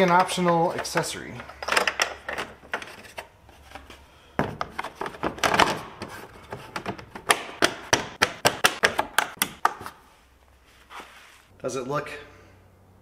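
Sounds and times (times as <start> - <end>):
sharp clicks and knocks: 4.4 - 9.9.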